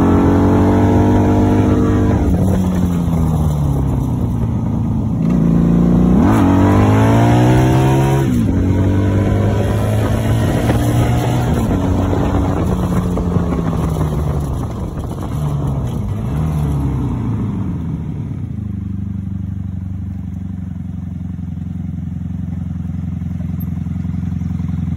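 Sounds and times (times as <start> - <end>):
motorcycle engine: 0.0 - 24.9
wind rush: 6.2 - 17.3.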